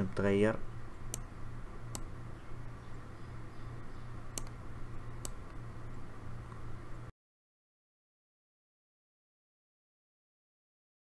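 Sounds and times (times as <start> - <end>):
steady low hum: 0.0 - 7.1
mouse button clicking: 4.4 - 4.6, 5.2 - 5.6.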